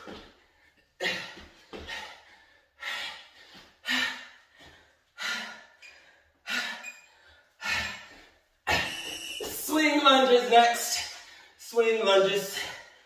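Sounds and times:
man gasping breaths: 0:00.0 - 0:09.0.

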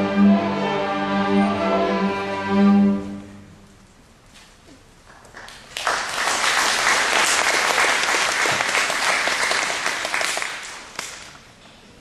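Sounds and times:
audience applause: 0:05.1 - 0:11.4.

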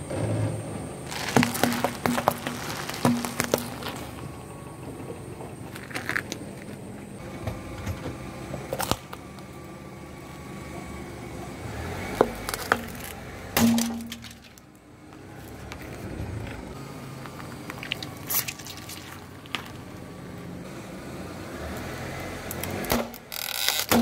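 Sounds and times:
plastic cracking under tyre: 0:01.1 - 0:04.3, 0:08.7 - 0:09.5, 0:12.1 - 0:14.7, 0:17.2 - 0:19.8, 0:22.5 - 0:24.0.

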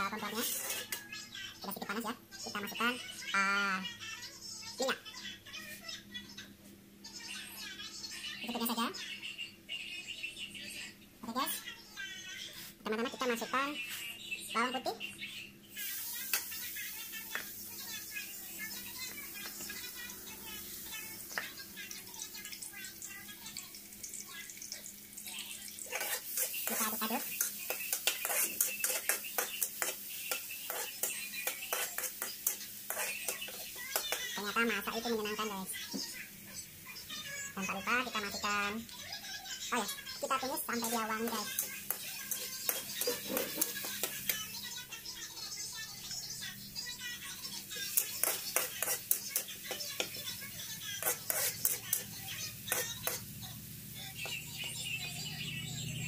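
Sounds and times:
metal spatula scraping a wok: 0:00.3 - 0:01.0, 0:25.8 - 0:34.2, 0:40.8 - 0:44.3, 0:47.8 - 0:50.2, 0:51.0 - 0:53.3
oil sizzling: 0:15.6 - 0:56.0.

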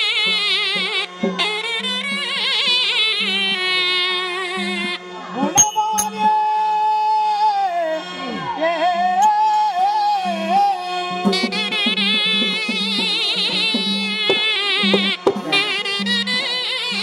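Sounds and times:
double-reed pipe: 0:00.0 - 0:17.0
long bending held notes: 0:00.0 - 0:17.0
light drum strokes: 0:11.3 - 0:16.8.

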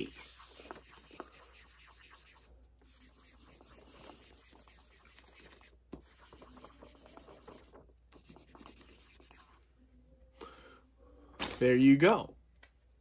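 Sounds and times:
marker scribbling on paper: 0:00.0 - 0:09.6.

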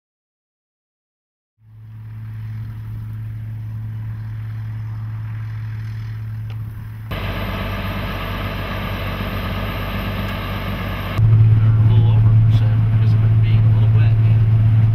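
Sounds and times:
combine harvester engine rumble: 0:01.7 - 0:14.9
high machine whine: 0:01.8 - 0:14.9.

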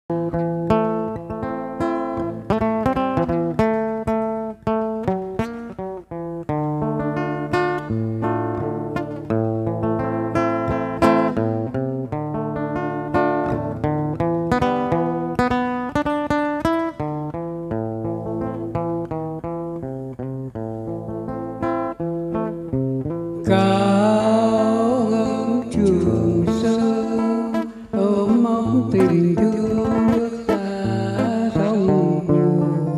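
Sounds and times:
acoustic guitar melody: 0:00.0 - 0:32.9
man singing into a microphone: 0:23.4 - 0:32.9.

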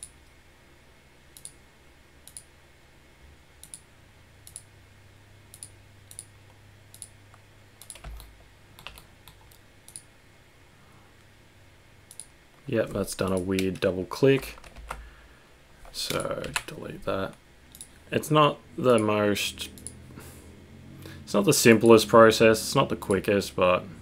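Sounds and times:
faint low hum: 0:00.0 - 0:24.0
computer mouse clicks: 0:01.4 - 0:01.6, 0:02.2 - 0:02.5, 0:03.6 - 0:03.8, 0:04.4 - 0:04.7, 0:05.5 - 0:06.3, 0:06.9 - 0:07.2, 0:07.8 - 0:10.1, 0:12.1 - 0:12.3, 0:17.7 - 0:18.0, 0:19.7 - 0:20.0.

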